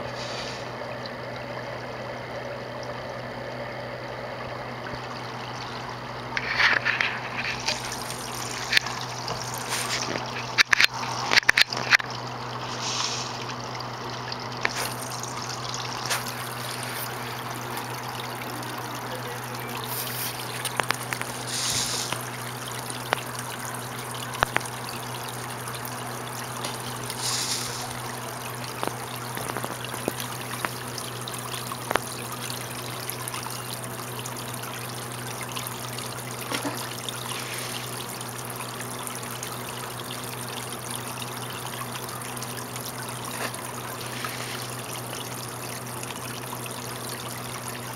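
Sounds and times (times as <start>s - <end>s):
low steady hum: 0.0s - 47.9s
pond water trickling: 0.0s - 47.9s
fish splashing at surface: 0.1s - 0.7s, 5.5s - 32.2s, 36.4s - 39.2s, 42.6s - 46.2s.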